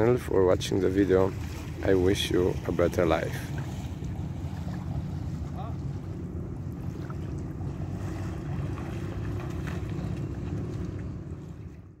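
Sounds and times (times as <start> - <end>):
splashes of wading: 0.6 - 12.0.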